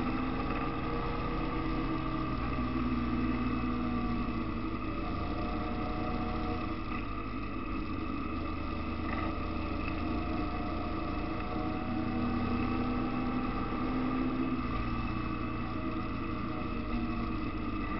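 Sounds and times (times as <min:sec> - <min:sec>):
motorcycle engine cruising: 0:00.0 - 0:17.9.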